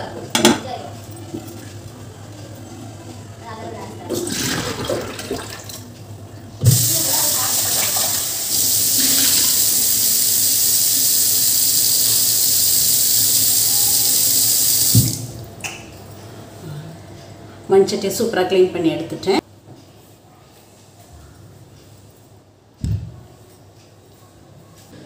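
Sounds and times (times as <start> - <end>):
water poured into sink: 6.6 - 15.3
tap water running into pot: 6.6 - 15.4.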